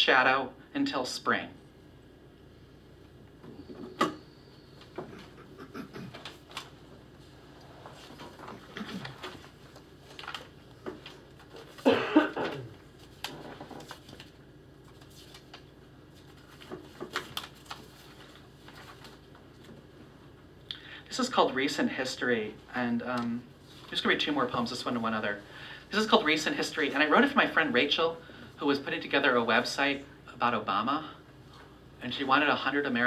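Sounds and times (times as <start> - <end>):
person coughing: 5.0 - 6.3, 11.8 - 12.8
paper rustling and shuffling: 6.0 - 20.1, 23.1 - 25.3.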